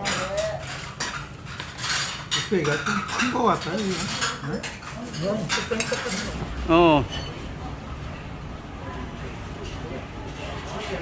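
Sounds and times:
utensils clinking against dishes: 0.0 - 7.5.

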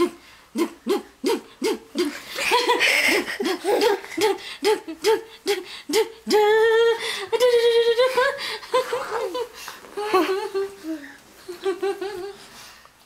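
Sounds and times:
toddler laughing: 2.0 - 4.4.

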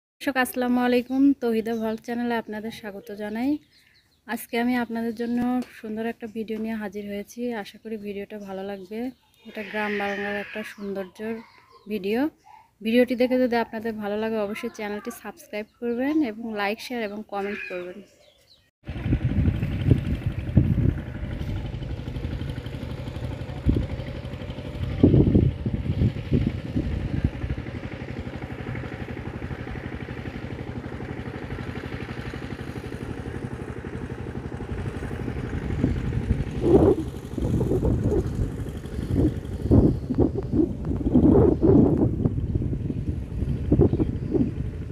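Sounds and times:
wind buffeting microphone: 18.9 - 44.9.

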